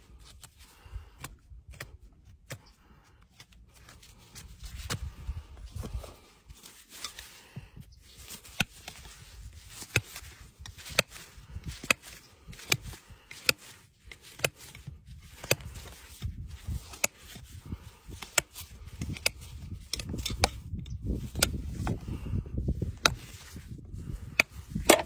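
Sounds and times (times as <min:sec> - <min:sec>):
hoof knife cutting clicks: 0:11.8 - 0:16.0, 0:18.1 - 0:22.0.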